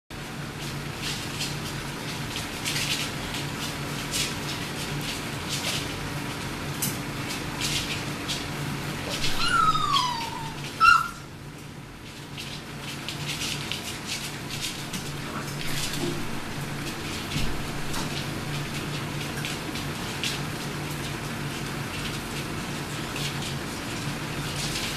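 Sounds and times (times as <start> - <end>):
puppies rustling on blankets: 0.2 - 24.9
puppy whining: 9.0 - 11.3
puppy yelping: 9.0 - 11.3.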